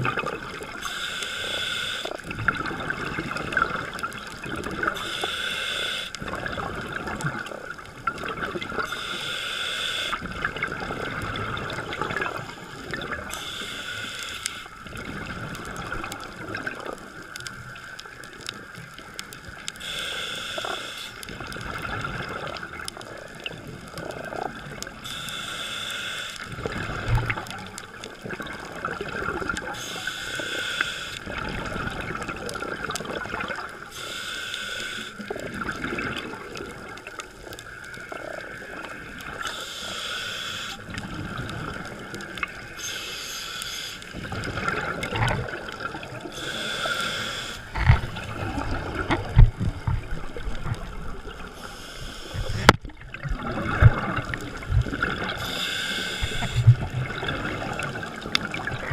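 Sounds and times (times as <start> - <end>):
hissing regulator inhalations: 0.8 - 2.2, 4.9 - 6.2, 8.8 - 10.2, 13.3 - 14.8, 19.8 - 21.3, 25.0 - 26.6, 29.8 - 31.4, 33.9 - 35.3, 39.4 - 41.0, 42.6 - 44.3, 46.3 - 48.1, 51.5 - 52.7, 55.4 - 56.7
bubbling exhalations: 52.3 - 58.9.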